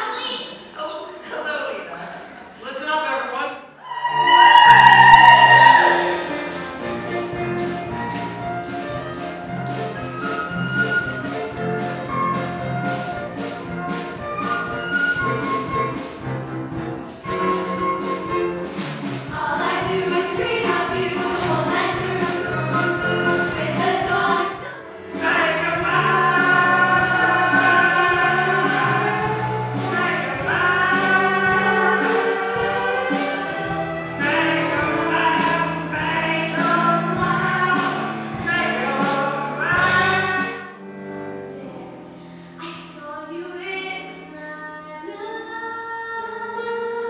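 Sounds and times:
chorus singing: 3.8 - 8.8, 17.2 - 40.8
instrumental accompaniment: 3.8 - 42.6.

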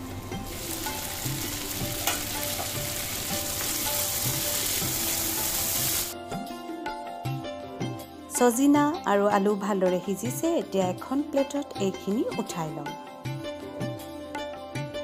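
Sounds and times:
food sizzling in hot oil: 0.0 - 6.2
water dripping into pan: 1.3 - 5.1.

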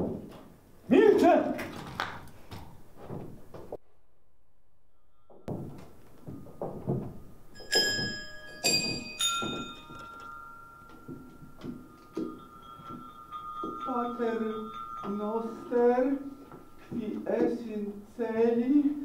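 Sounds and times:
footsteps on wooden stage: 1.7 - 3.8, 5.5 - 17.8
bell-like metallic strikes: 4.9 - 18.2.

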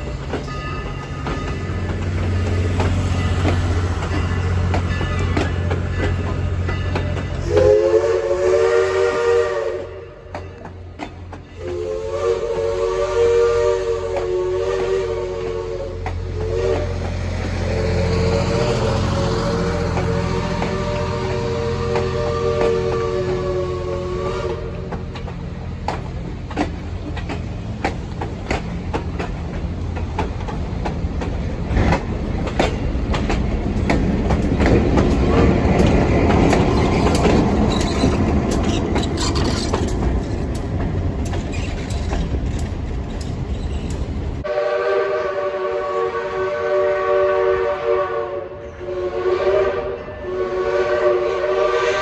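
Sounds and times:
wheels clicking over rail joints: 0.0 - 7.7, 9.8 - 12.8, 13.6 - 44.5
train cars rumbling past: 0.0 - 52.0
steam whistle: 7.4 - 10.2, 11.5 - 17.1, 17.7 - 24.9, 44.4 - 52.0.

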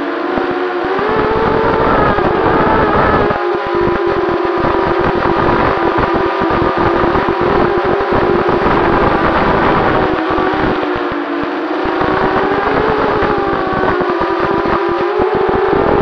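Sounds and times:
quadcopter motors whining: 0.0 - 16.0
wind rumble on microphone: 0.0 - 16.0.

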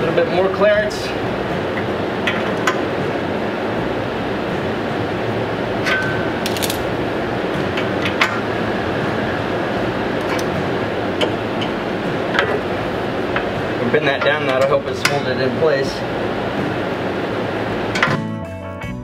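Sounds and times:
steady background hum: 0.0 - 18.2
hand tool clinking on metal: 6.4 - 6.9.

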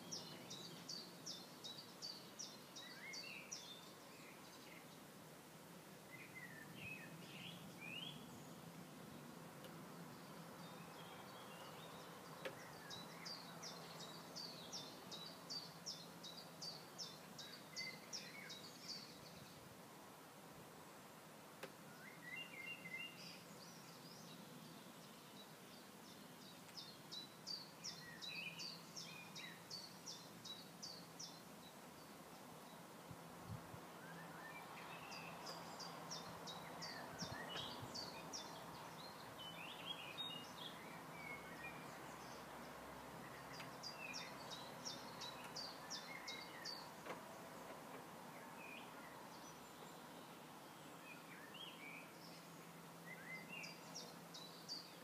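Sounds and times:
bird chirps: 10.1 - 19.6, 21.9 - 32.8, 34.0 - 42.5, 43.2 - 47.8, 48.4 - 55.0.

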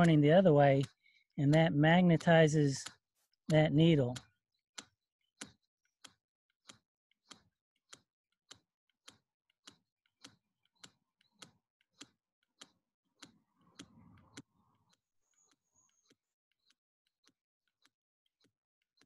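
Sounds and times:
needle clicking on magnet: 2.8 - 14.5.

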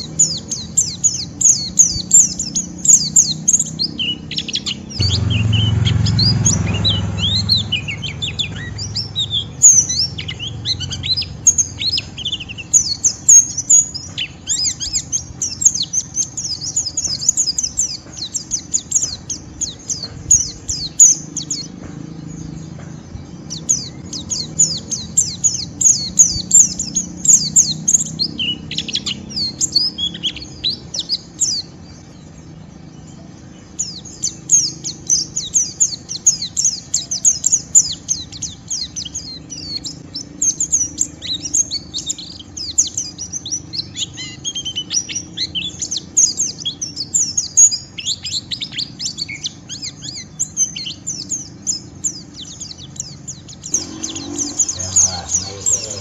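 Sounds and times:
bird chattering twitter: 0.0 - 32.1, 33.6 - 56.0
low rumble: 4.9 - 11.1, 53.7 - 56.0.

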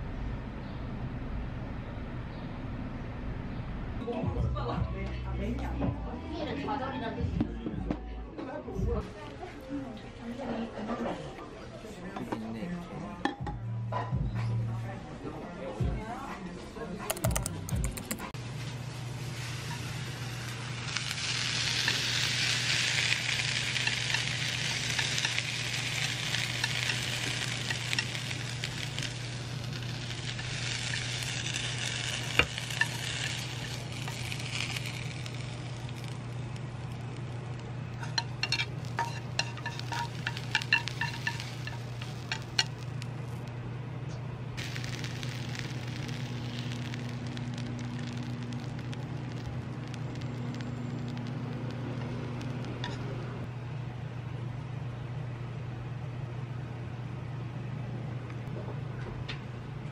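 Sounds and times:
utensil clicking against pan: 17.1 - 18.2
onions sizzling in a frying pan: 18.4 - 43.5, 44.6 - 53.1
low hum: 19.1 - 59.9.

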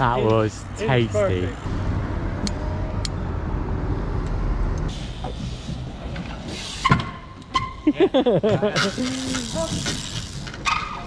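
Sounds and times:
low traffic rumble: 0.0 - 11.0
bike wheel hopping on wooden deck: 8.8 - 10.8.

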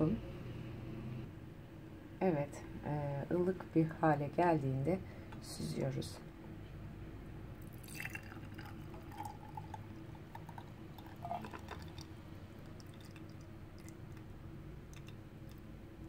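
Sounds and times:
liquid trickling into bowl: 7.6 - 15.7.

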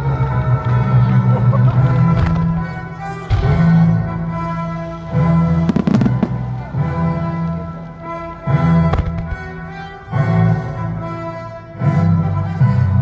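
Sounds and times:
background music: 0.0 - 13.0
firework shells bursting: 1.7 - 4.9, 8.8 - 9.8.

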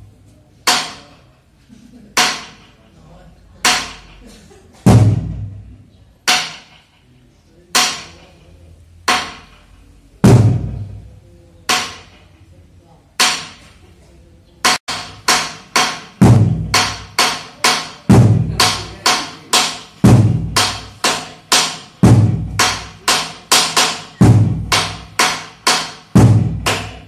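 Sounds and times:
drum beating dance rhythm: 4.8 - 5.7, 9.1 - 9.6, 10.2 - 11.1, 14.6 - 27.0.

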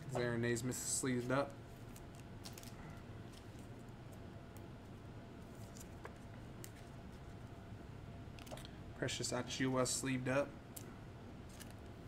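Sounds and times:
low steady hum: 0.0 - 12.0
cards clicking and rustling: 1.9 - 2.8.

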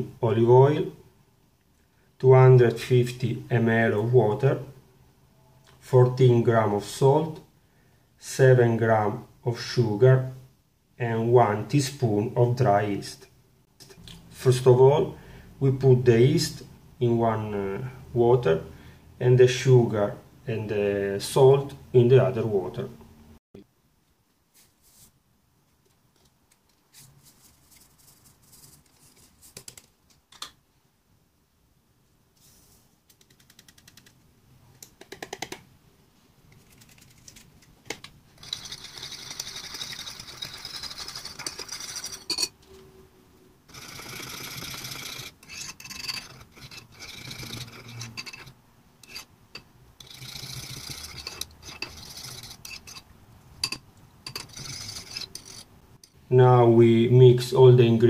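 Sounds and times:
spoons scraping ceramic bowls: 38.4 - 42.8, 43.7 - 55.7.

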